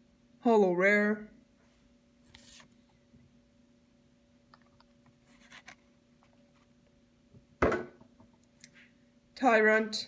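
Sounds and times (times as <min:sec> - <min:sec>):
card sliding rustle: 0:02.2 - 0:02.8, 0:05.2 - 0:05.8.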